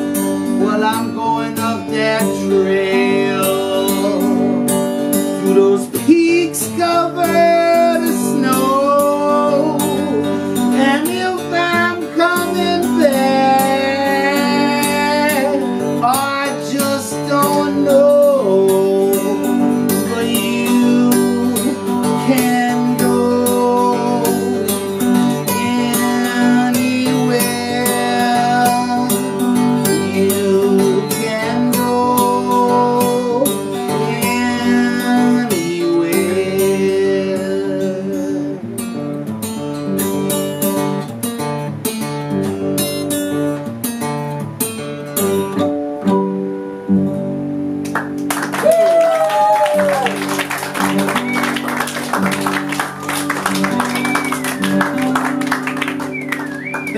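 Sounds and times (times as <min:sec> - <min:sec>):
person singing: 0:00.0 - 0:04.6, 0:05.3 - 0:38.6
acoustic guitar picked and strummed: 0:00.0 - 0:56.9.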